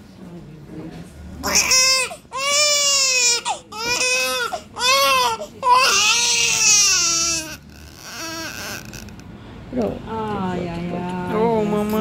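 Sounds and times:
baby crying: 1.4s - 9.1s.

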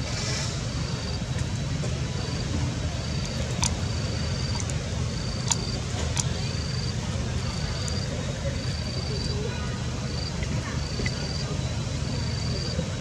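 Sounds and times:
low outdoor rumble: 0.0s - 13.0s.

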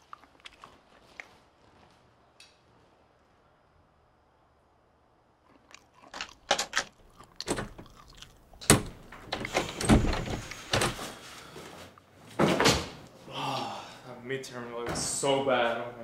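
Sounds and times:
door lock clicks and rattles: 6.5s - 8.0s, 8.6s - 11.0s
door thumps: 8.6s - 11.0s.

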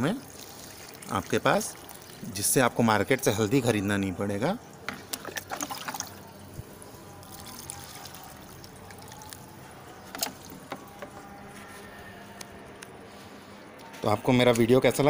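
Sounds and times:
water trickling and splashing: 0.0s - 11.2s.

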